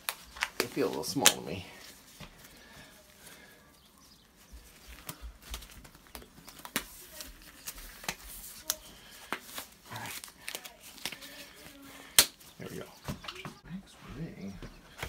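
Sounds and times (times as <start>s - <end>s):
glove material snapping: 0.0s - 1.5s, 4.7s - 12.5s
rubber gloves rustling and stretching: 0.0s - 13.6s.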